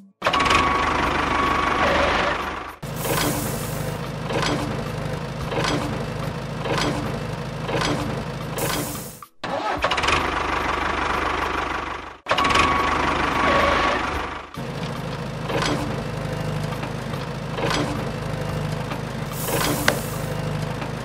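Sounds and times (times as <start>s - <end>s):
small motors humming: 14.6s - 21.0s.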